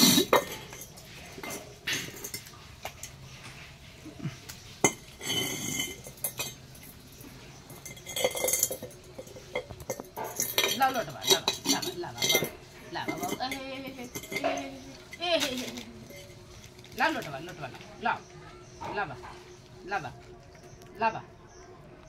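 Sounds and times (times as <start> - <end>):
metal pot clanking on concrete: 0.0 - 3.3, 4.8 - 16.9.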